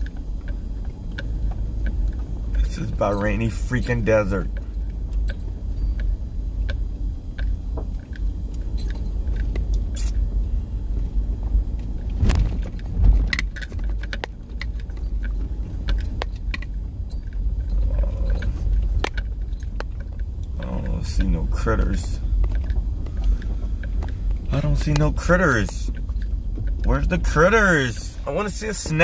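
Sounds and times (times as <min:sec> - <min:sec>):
car cabin rumble: 0:00.0 - 0:29.0
interior rattles and knocks: 0:00.0 - 0:29.0
car jolt: 0:12.1 - 0:17.3.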